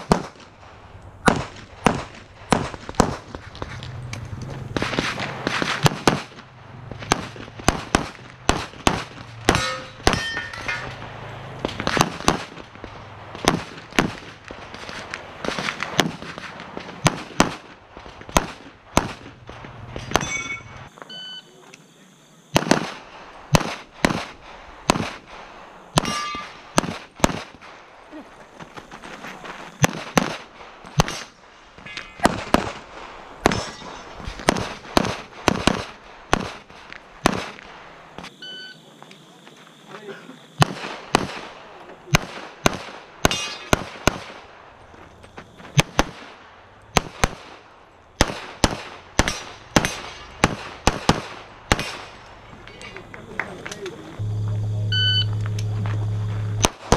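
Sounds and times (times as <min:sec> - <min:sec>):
pistol gunshots: 0:00.0 - 0:00.6, 0:01.2 - 0:03.4, 0:04.6 - 0:20.8, 0:22.5 - 0:27.8, 0:29.8 - 0:31.4, 0:32.2 - 0:37.7, 0:40.6 - 0:44.6, 0:45.7 - 0:52.4, 0:56.6 - 0:56.9.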